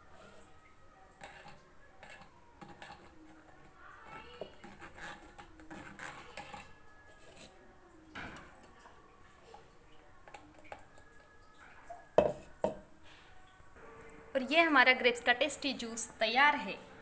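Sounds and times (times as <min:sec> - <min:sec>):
metal spoon scraping mesh strainer: 0:01.2 - 0:03.3, 0:04.1 - 0:07.7.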